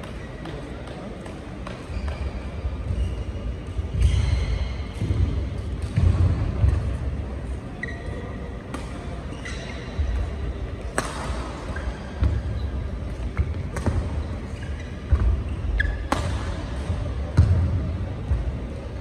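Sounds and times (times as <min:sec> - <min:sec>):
shoe squeak: 0:01.8 - 0:04.9, 0:07.7 - 0:08.5, 0:09.2 - 0:10.1, 0:14.2 - 0:16.6
racket striking shuttlecock: 0:10.9 - 0:12.3, 0:15.1 - 0:17.6.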